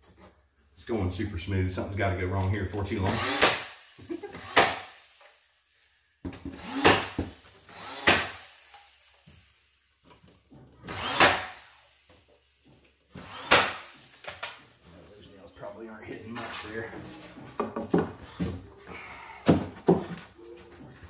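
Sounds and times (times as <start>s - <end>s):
nail gun motor whir: 3.0s - 5.6s, 6.4s - 9.7s, 10.8s - 14.7s
nail gun shots into wood: 3.2s - 3.8s, 4.4s - 5.0s, 6.7s - 8.5s, 10.8s - 11.7s, 13.2s - 14.6s.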